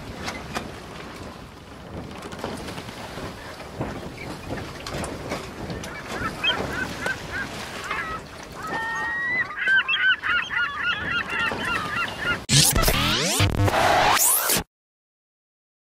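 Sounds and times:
flock of birds calling: 0:05.8 - 0:12.4
loud rising whoosh: 0:12.5 - 0:14.6.

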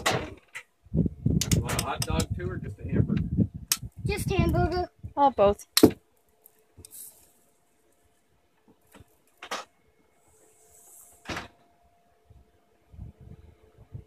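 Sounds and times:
soft rushing hiss: 0:06.2 - 0:14.0.

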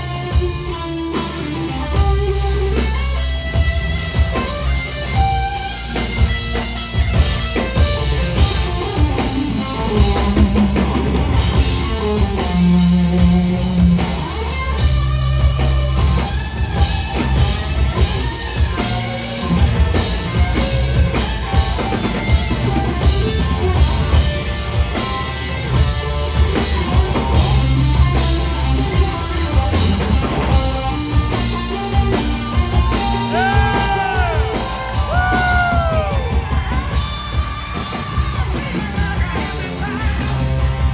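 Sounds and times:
bass guitar: 0:00.0 - 0:40.9
drum kit: 0:00.0 - 0:40.9
electric guitar: 0:00.0 - 0:40.9.

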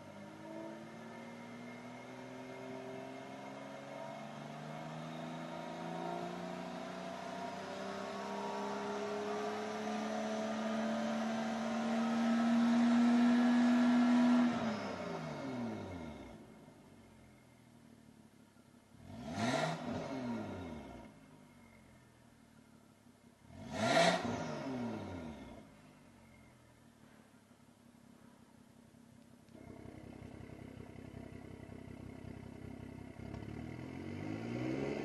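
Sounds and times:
car engine revving: 0:00.0 - 0:16.7, 0:19.0 - 0:21.8, 0:23.4 - 0:26.4, 0:29.6 - 0:35.0.

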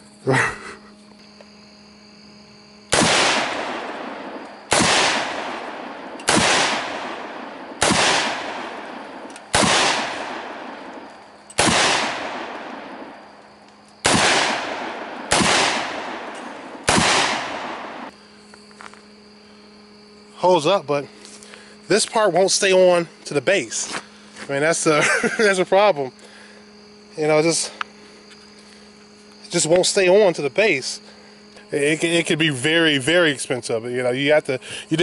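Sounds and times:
rifle shots with echo: 0:02.9 - 0:13.3, 0:14.0 - 0:18.1.

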